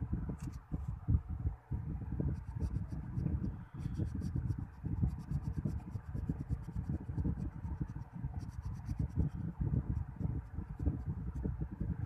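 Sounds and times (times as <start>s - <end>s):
pencil scratching on paper: 2.3s - 11.1s.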